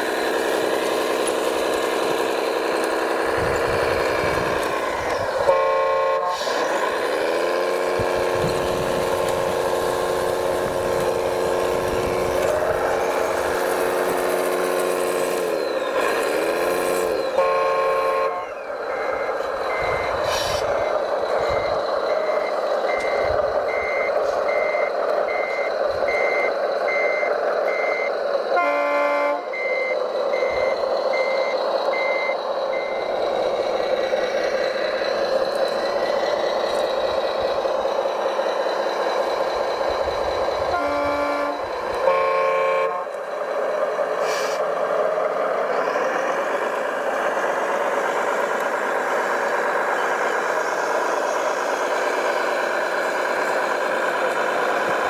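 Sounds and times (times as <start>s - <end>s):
model truck engine running: 0.0s - 55.0s
reversing beeper: 1.6s - 44.6s
short horn toots: 40.7s - 43.1s.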